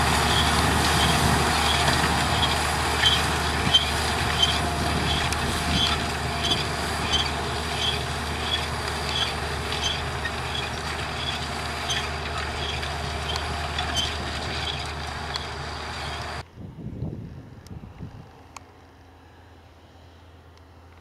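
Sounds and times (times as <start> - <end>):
tractor diesel engine under load: 0.0 - 16.4.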